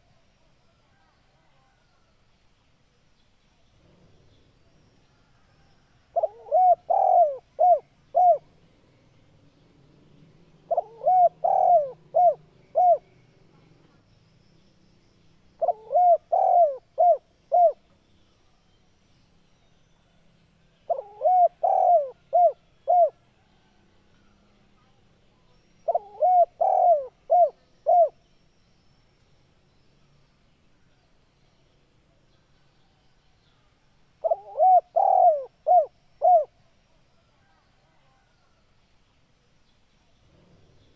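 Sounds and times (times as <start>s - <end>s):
dove cooing: 6.1s - 8.6s, 10.6s - 13.1s, 15.6s - 17.8s, 20.9s - 23.2s, 25.9s - 28.2s, 34.2s - 36.5s.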